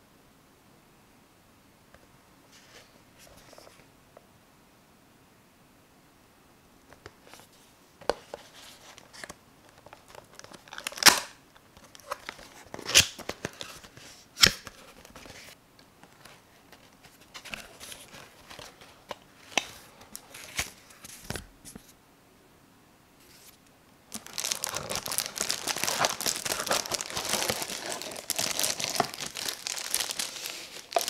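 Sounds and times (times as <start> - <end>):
paper leaflet rustling: 14.8 - 21.9, 23.2 - 31.0
cardboard scraping and tearing: 24.1 - 31.0.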